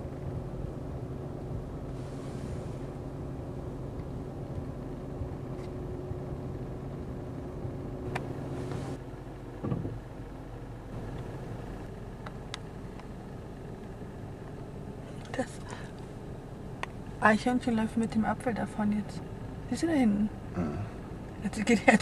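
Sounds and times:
vehicle engine idling: 0.0s - 22.0s.

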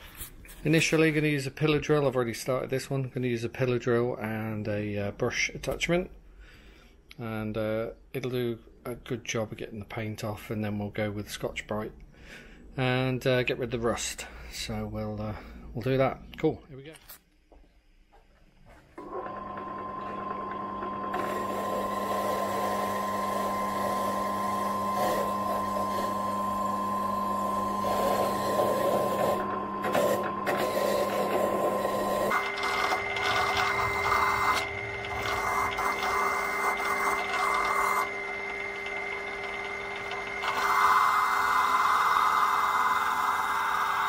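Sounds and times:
pillar drill motor hum: 19.0s - 44.0s.

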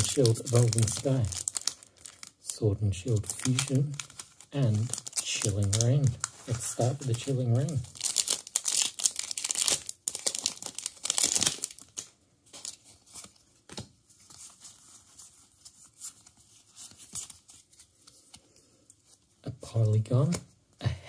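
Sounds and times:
foil wrapper tearing and crinkling: 0.0s - 2.4s, 3.2s - 13.3s.

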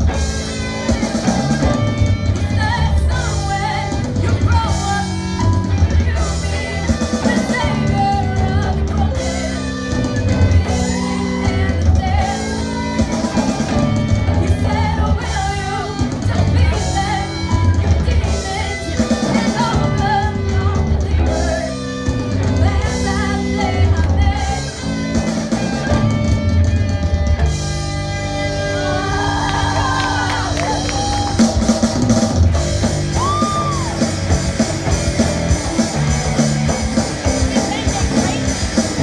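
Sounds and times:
live rock band playing: 0.0s - 39.0s
pulsing bass line: 0.0s - 39.0s
woman singing: 2.4s - 24.9s.

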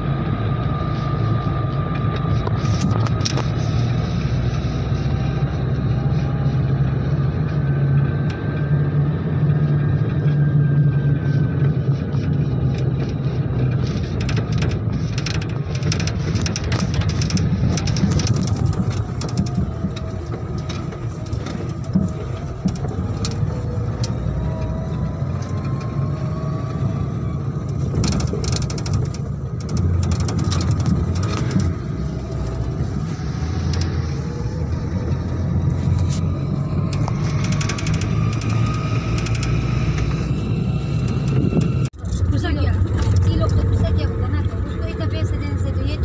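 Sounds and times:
engine and road rumble: 0.0s - 46.0s
metal frame rattling: 13.7s - 23.5s, 28.0s - 32.7s.

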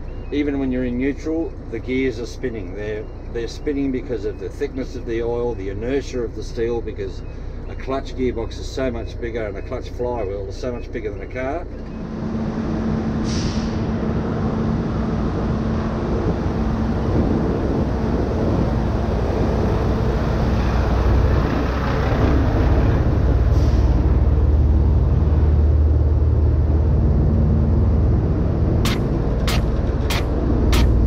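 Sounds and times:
truck diesel engine: 0.0s - 31.0s
air brake hisses: 13.2s - 13.9s.

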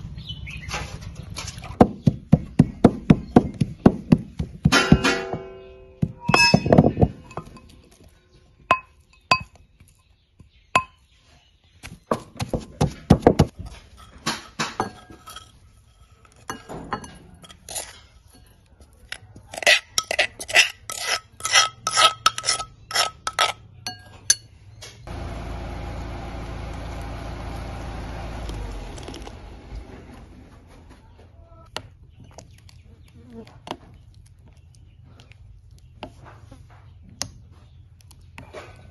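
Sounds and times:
wooden pestle thudding in mortar: 6.0s - 7.6s
clinks of scraping into glass bowl: 13.7s - 15.6s, 19.5s - 24.5s.

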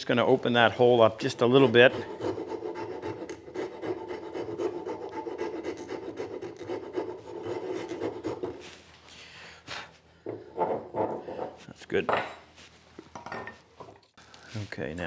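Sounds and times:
wood rasp filing: 1.3s - 8.9s.

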